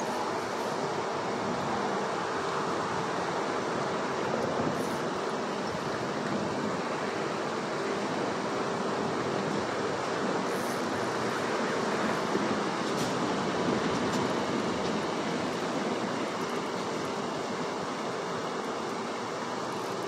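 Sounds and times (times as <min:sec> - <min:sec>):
rushing outdoor background noise: 0:00.0 - 0:20.0.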